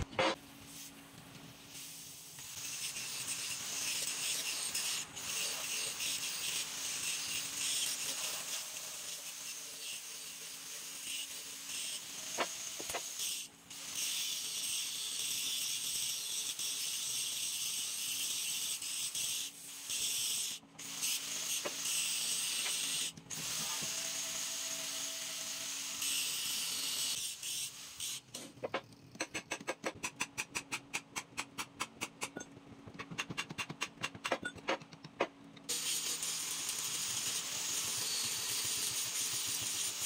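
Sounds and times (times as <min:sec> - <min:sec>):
angle grinder grinding metal: 0:02.4 - 0:28.3, 0:35.7 - 0:40.0.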